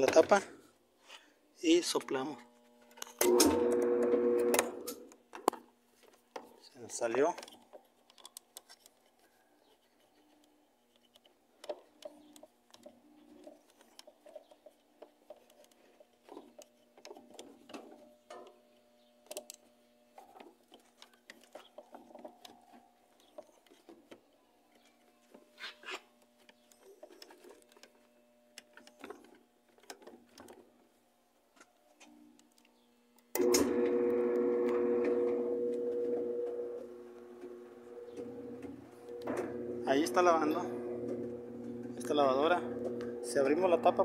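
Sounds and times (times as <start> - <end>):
clicks and rubbing of hose: 4.8 - 18.6, 20.2 - 30.8
faint steady hum: 30.4 - 44.0.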